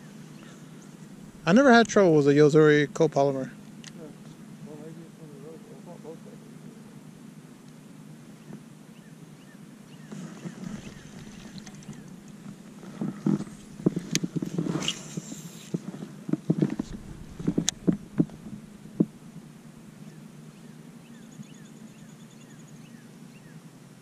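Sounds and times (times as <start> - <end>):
steady low hum: 0.0 - 24.0
knocks and clatter on boat: 10.1 - 14.8, 16.3 - 19.2.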